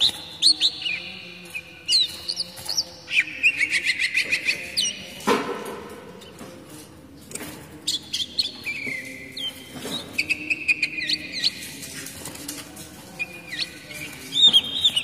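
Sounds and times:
bird chirps: 0.0s - 5.2s, 7.8s - 12.0s, 13.2s - 15.0s
bird whistling song: 0.0s - 5.2s, 7.9s - 11.8s, 13.2s - 15.0s.

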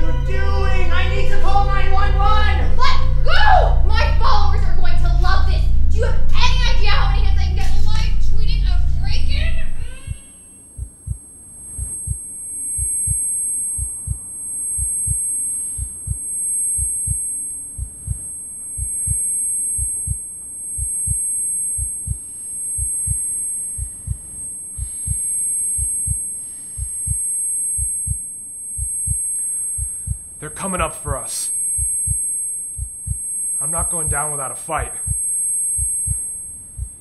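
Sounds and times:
low drone: 0.0s - 10.9s
heartbeat thumps: 0.0s - 20.2s, 20.8s - 28.2s, 28.8s - 30.4s, 31.0s - 37.0s
high ringing tone: 0.0s - 37.0s.

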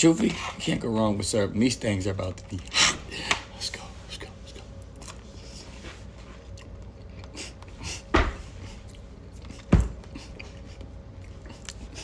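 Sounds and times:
person chewing fries: 4.2s - 5.7s, 6.3s - 12.0s.

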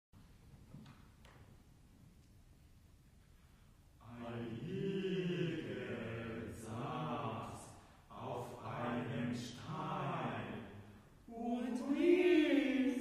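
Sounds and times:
choir singing a cappella: 4.0s - 13.0s.

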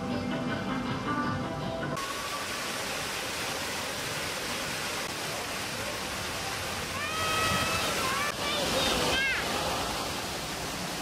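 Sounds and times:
waterfall roar: 2.0s - 11.0s.

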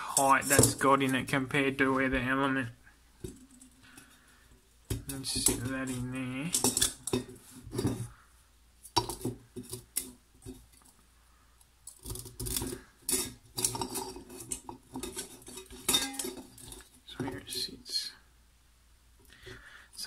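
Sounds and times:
metal can clinking and scraping: 12.0s - 17.6s.

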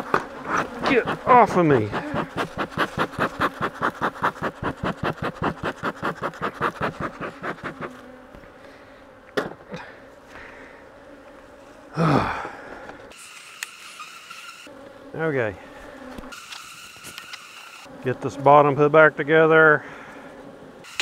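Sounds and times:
honey bees buzzing: 0.0s - 21.0s
man groaning sigh: 11.9s - 12.8s.

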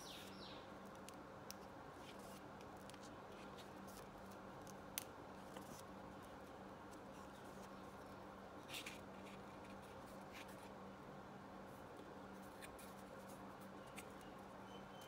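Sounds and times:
low steady hum: 0.0s - 15.0s
paper and card rustling: 2.0s - 4.7s.

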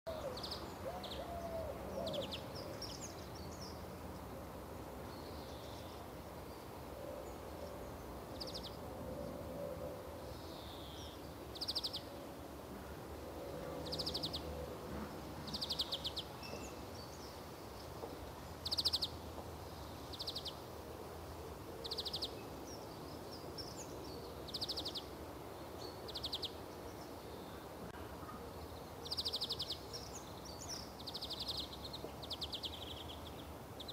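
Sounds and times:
steady hiss: 9.9s - 33.9s.

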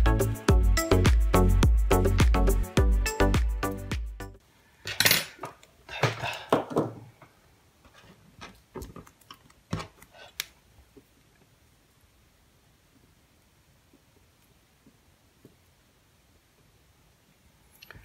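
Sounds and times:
metal tools clattering on wooden desk: 4.9s - 6.3s.

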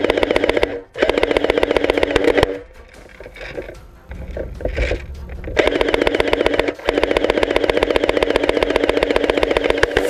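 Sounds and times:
airsoft rifle firing full auto: 0.0s - 2.6s, 5.6s - 10.0s.

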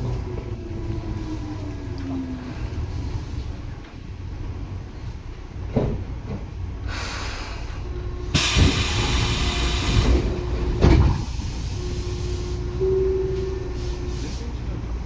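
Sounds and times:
train car rumble: 0.0s - 15.0s
compressed air hiss: 8.4s - 10.3s.

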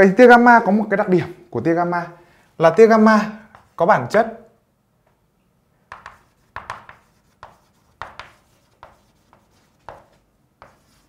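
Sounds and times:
chalk writing on chalkboard: 3.5s - 3.8s, 5.9s - 11.0s.

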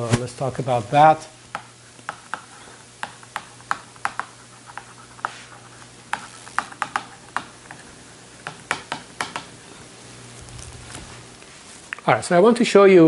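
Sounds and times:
faint low hum: 0.0s - 13.0s
marker writing on whiteboard: 1.5s - 7.8s.

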